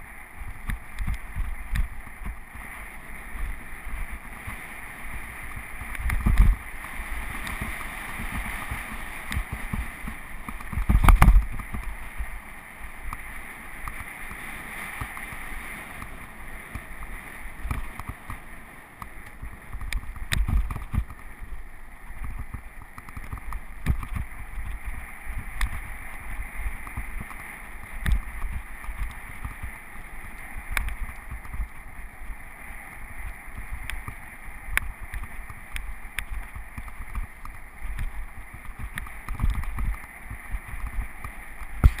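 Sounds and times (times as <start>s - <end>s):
wind on camera: 0.0s - 42.0s
bike clicking and rattling: 5.4s - 12.0s, 16.0s - 21.6s, 22.2s - 25.8s, 26.7s - 32.0s, 33.5s - 42.0s.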